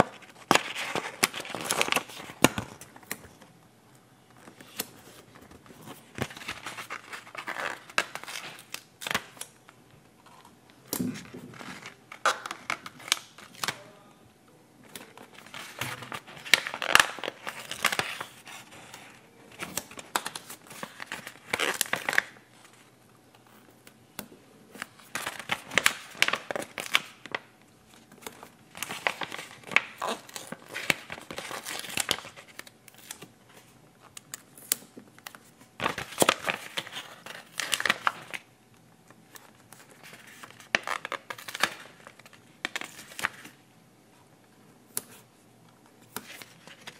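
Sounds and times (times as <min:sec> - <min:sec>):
sticker paper crinkling: 0:00.0 - 0:03.4, 0:28.0 - 0:38.4.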